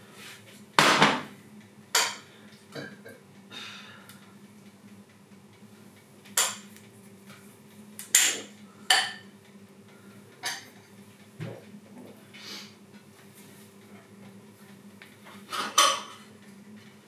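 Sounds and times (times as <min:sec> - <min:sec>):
dishes and cutlery clinking: 0:15.5 - 0:16.3.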